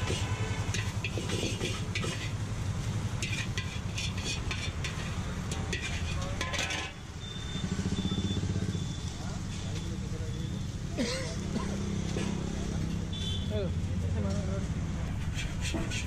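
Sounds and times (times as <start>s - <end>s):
metal spatula scraping wok: 0.0s - 7.0s, 15.2s - 16.0s.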